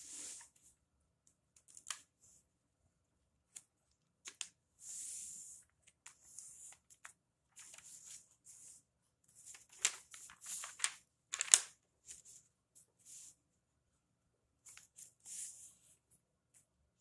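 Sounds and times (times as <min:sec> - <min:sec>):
paper rustling and swishing: 0:09.4 - 0:12.4
paper folds creased crisply: 0:09.5 - 0:11.7.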